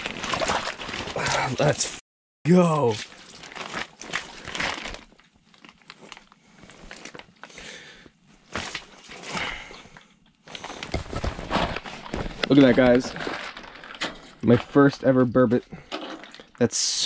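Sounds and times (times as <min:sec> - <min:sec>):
clothing rustling and crunching: 0:00.0 - 0:02.0, 0:02.7 - 0:07.6, 0:08.2 - 0:14.6.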